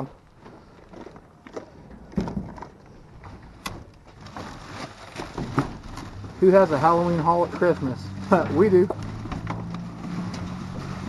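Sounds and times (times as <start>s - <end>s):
bubble wrap and cardboard rustling: 4.0s - 11.0s.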